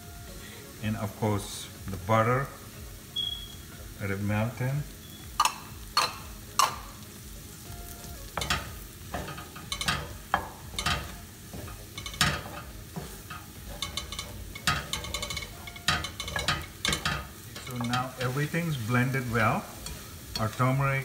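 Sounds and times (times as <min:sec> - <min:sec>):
butter sizzling in a pan: 0:00.0 - 0:21.0
spatula scraping a pan: 0:08.0 - 0:21.0.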